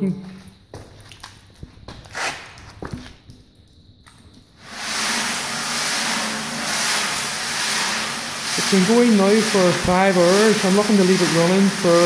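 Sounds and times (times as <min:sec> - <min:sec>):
media churning in rotating tank: 0:04.6 - 0:12.0.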